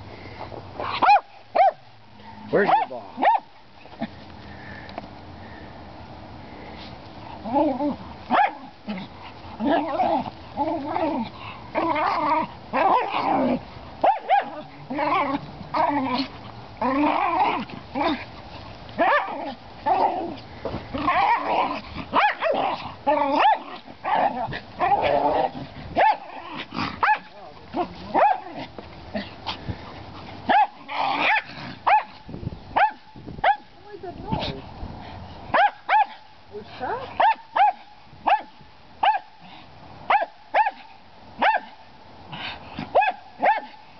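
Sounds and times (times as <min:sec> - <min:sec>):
small dogs barking and yipping: 0:00.8 - 0:04.2, 0:07.3 - 0:34.6, 0:35.4 - 0:43.9
small dog barking: 0:00.9 - 0:01.9, 0:02.6 - 0:03.5, 0:08.3 - 0:08.7, 0:14.0 - 0:14.7, 0:19.0 - 0:19.5, 0:22.1 - 0:22.7, 0:23.3 - 0:24.4, 0:26.0 - 0:26.3, 0:27.0 - 0:27.4, 0:28.1 - 0:28.6, 0:30.5 - 0:32.2, 0:32.8 - 0:33.7, 0:35.5 - 0:36.3, 0:37.1 - 0:39.4, 0:40.1 - 0:41.8, 0:42.9 - 0:43.8.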